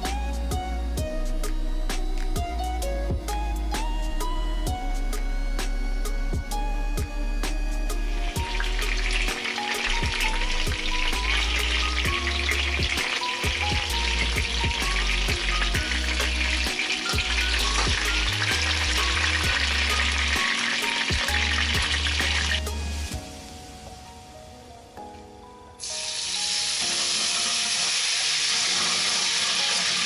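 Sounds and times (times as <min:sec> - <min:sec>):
background music: 0:00.0 - 0:30.0
chicken sizzling in oil: 0:08.3 - 0:23.5, 0:25.8 - 0:30.0.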